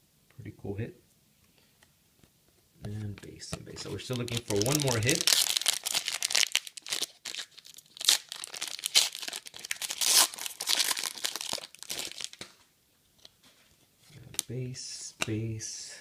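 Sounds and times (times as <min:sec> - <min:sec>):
foil wrapper crinkling: 0:03.7 - 0:12.6.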